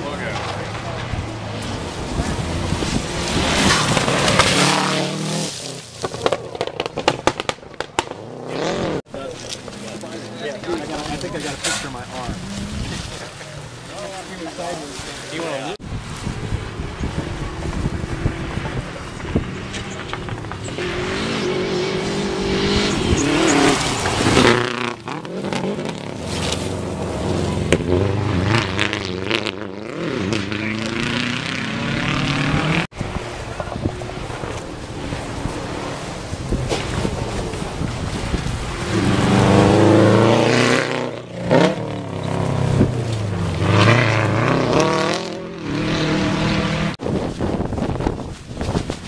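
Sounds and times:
tyres on loose gravel: 0:00.0 - 0:21.0, 0:22.8 - 0:29.0, 0:47.0 - 0:49.0
rally car engine revving past: 0:01.4 - 0:05.6, 0:16.7 - 0:33.3, 0:38.7 - 0:47.0.

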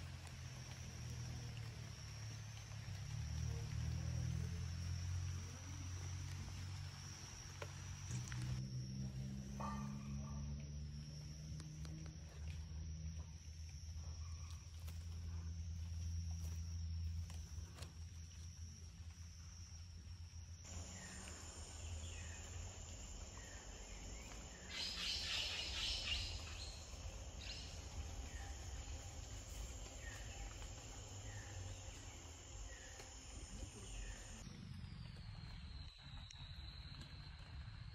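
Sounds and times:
high insect drone: 0:00.0 - 0:37.9.

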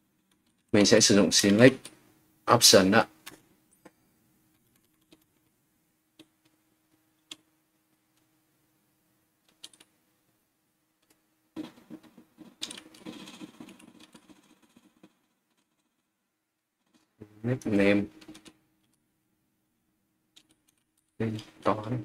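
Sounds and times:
keystrokes on computer keyboard: 0:04.5 - 0:05.5, 0:09.4 - 0:09.9, 0:11.0 - 0:16.0, 0:16.9 - 0:19.0, 0:20.4 - 0:21.5.

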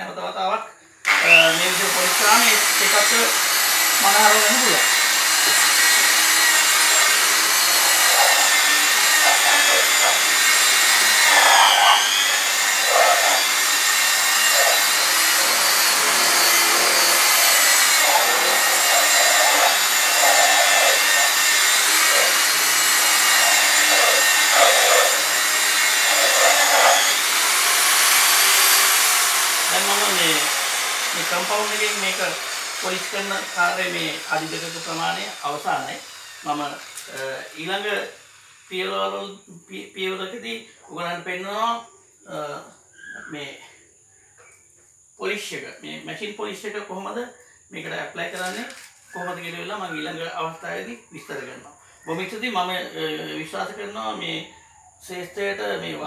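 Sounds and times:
electric polisher motor whine: 0:01.0 - 0:38.7.

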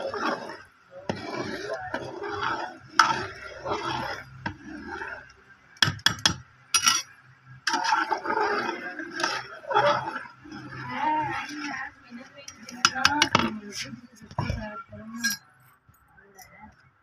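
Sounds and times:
sloshing broth: 0:00.0 - 0:05.3, 0:07.7 - 0:12.0
ladle scraping pot: 0:00.0 - 0:15.4
ladle stirring in metal pot: 0:00.0 - 0:15.4.

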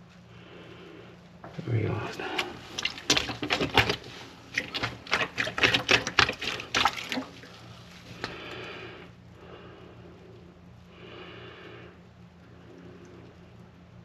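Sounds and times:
water splashing in a sink: 0:02.0 - 0:08.4.

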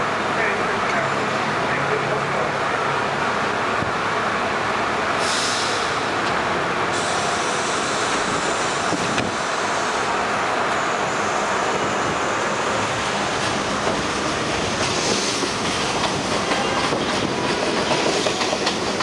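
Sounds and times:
subway train rumble: 0:00.0 - 0:19.0
air hiss: 0:05.2 - 0:06.1, 0:06.9 - 0:10.1.

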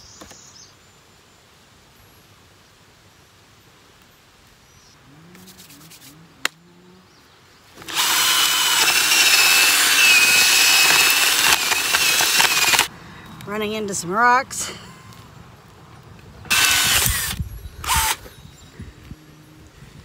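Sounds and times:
drill boring into soil: 0:07.8 - 0:12.9, 0:16.5 - 0:18.3.

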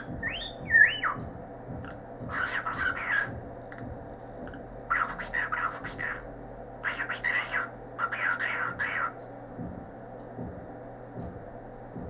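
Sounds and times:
bird rising whistles: 0:00.2 - 0:01.2
raspy speech-like bird chatter: 0:02.3 - 0:03.4, 0:04.9 - 0:09.2.

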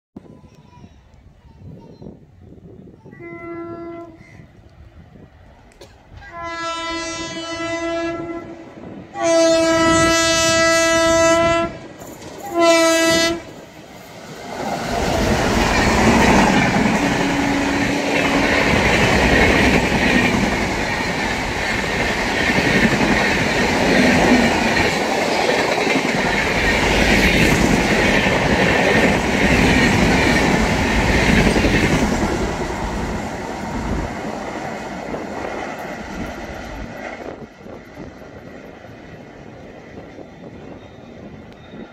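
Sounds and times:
locomotive air horn: 0:03.2 - 0:04.3, 0:06.2 - 0:11.8, 0:12.4 - 0:13.5
train wheels clattering: 0:11.9 - 0:12.6.

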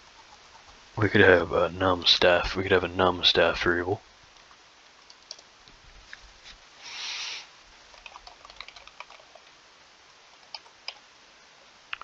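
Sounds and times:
keyboard typing: 0:05.1 - 0:05.4, 0:07.9 - 0:09.5
short soft hiss: 0:06.1 - 0:07.6.

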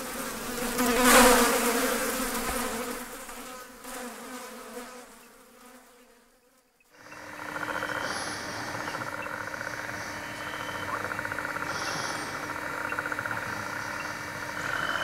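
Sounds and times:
frogs and insects trilling: 0:06.8 - 0:15.0
steady low hum: 0:06.9 - 0:15.0.

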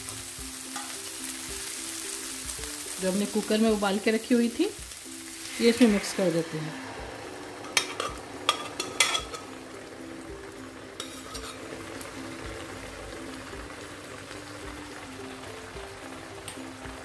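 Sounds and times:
pan frying: 0:00.0 - 0:17.0.

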